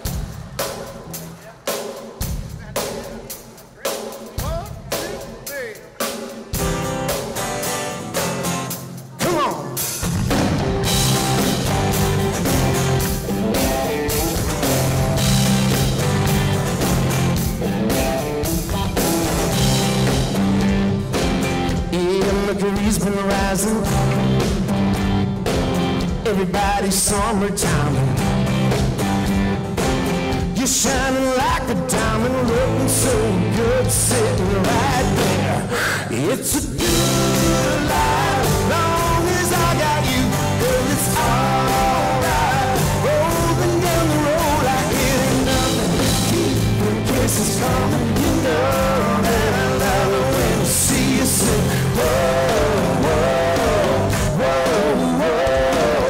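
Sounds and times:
country-rock band playing: 0.0 - 56.0
man singing lead: 9.1 - 10.0, 21.7 - 24.7, 26.0 - 28.4, 30.4 - 56.0.

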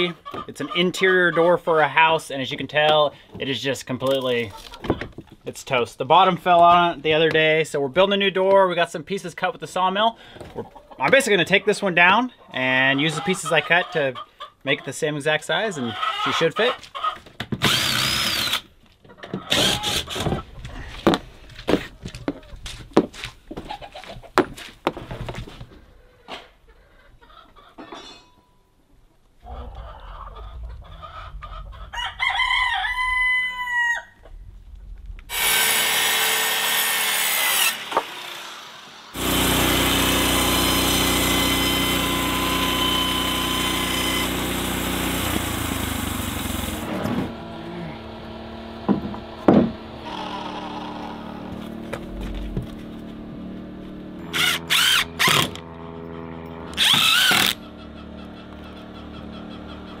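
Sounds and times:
band saw cutting board: 17.6 - 18.6, 35.3 - 52.9, 54.2 - 55.8, 56.6 - 57.7
cordless drill driving screws: 17.6 - 18.7, 19.5 - 20.3, 37.5 - 46.9, 54.3 - 55.6, 56.7 - 57.6
rooster crowing: 29.5 - 34.2.

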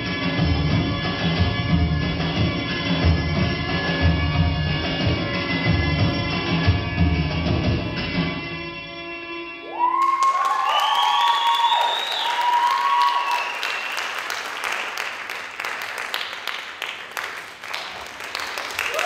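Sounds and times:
whoops and cheers: 9.6 - 14.1, 18.8 - 19.0
audience applauding: 9.8 - 19.0.

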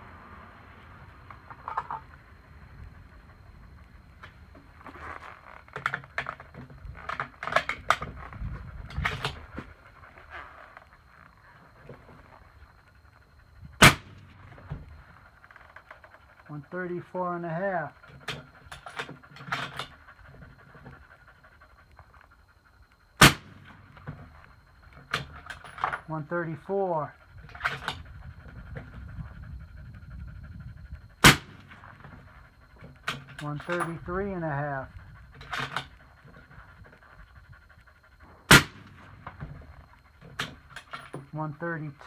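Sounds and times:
suppressed rifle shot: 13.8 - 14.3, 23.2 - 23.8, 31.2 - 31.8, 38.5 - 39.0.

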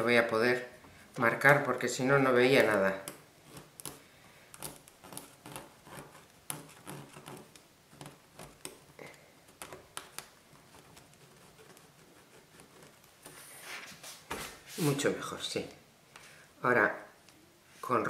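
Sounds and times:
pen scratching on fabric: 5.0 - 8.6.

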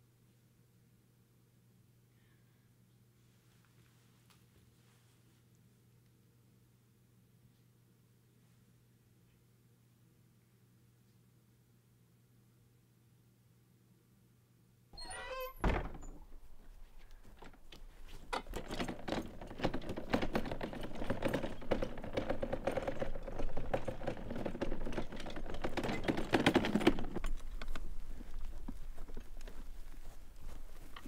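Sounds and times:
high squeak: 15.0 - 16.2
garden cart rattling and knocking: 15.0 - 31.0.

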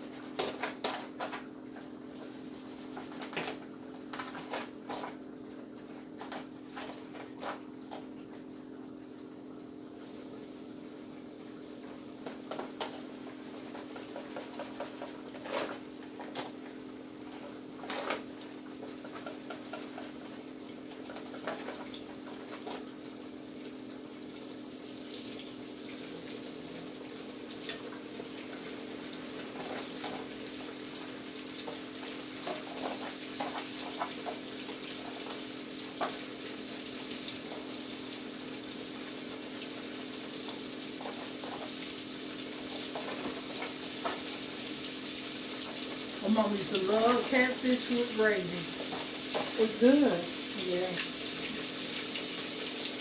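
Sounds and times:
fish frying in hot oil: 6.0 - 53.0.

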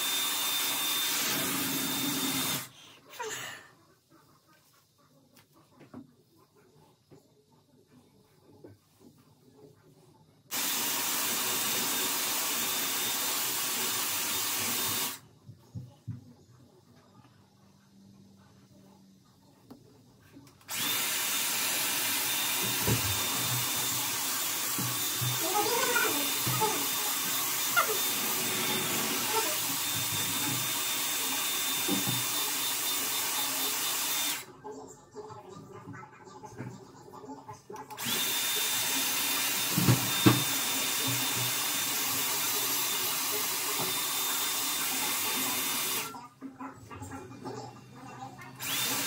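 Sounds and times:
hair styler blowing air: 0.0 - 2.7, 10.5 - 15.2, 20.7 - 34.5, 38.0 - 46.1, 48.6 - 49.0.

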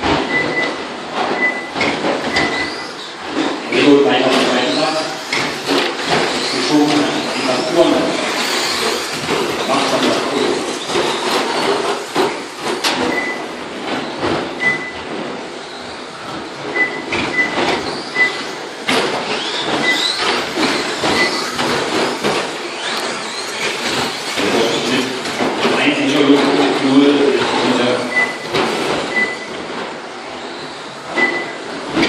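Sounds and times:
rc truck motor whine: 4.6 - 12.8, 17.8 - 25.5
short high beeps: 31.2 - 31.6.

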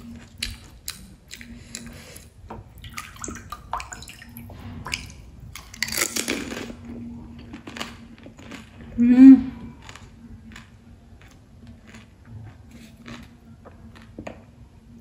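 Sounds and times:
water splashing and dripping: 2.8 - 5.7
crunching slurping bite and chewing: 9.7 - 14.2.

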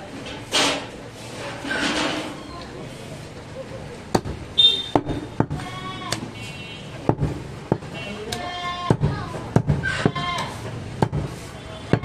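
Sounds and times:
goats bleating: 5.6 - 6.2
cleaver chopping on wooden block: 11.0 - 11.3.

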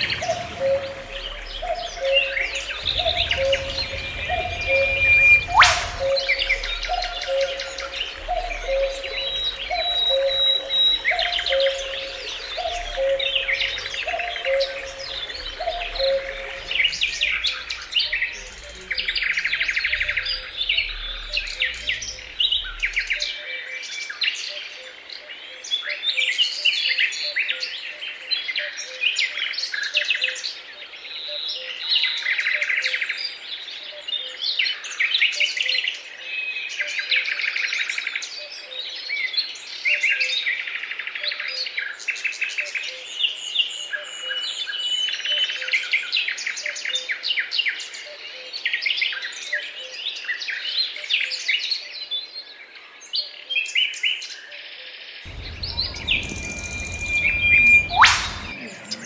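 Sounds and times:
songbirds chirping and singing: 0.0 - 24.2, 55.3 - 59.0.

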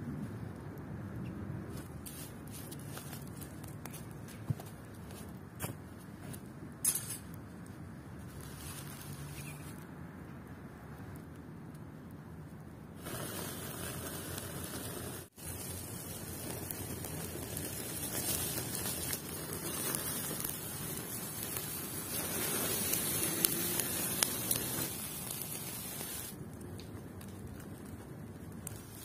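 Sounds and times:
campfire hiss and sizzle: 0.0 - 29.0
sharp crackling pops: 12.6 - 29.0.

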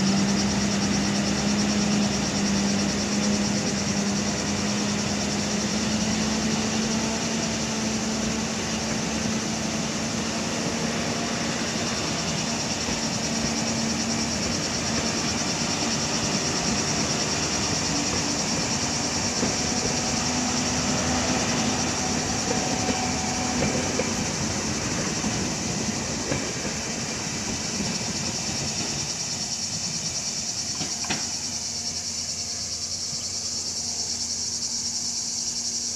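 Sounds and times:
train wheels rumbling on rails: 0.0 - 35.9
high insect shrill: 27.0 - 35.9.

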